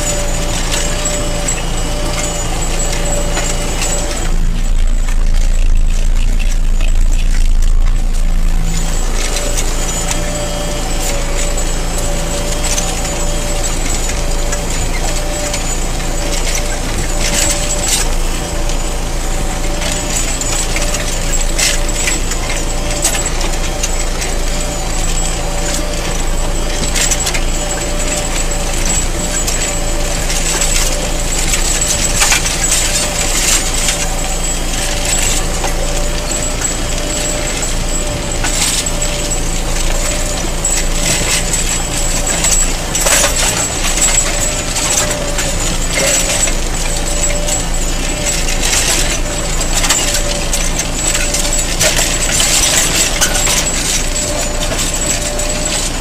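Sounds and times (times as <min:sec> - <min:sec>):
stones scraping and clinking on plow: 0:00.0 - 0:56.0
tractor engine under load: 0:00.0 - 0:56.0.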